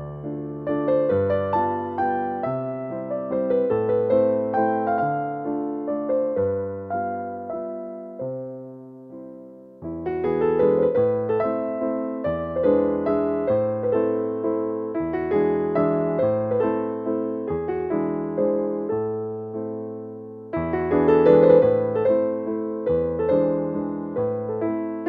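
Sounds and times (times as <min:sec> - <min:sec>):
gentle piano music: 0:00.0 - 0:25.0.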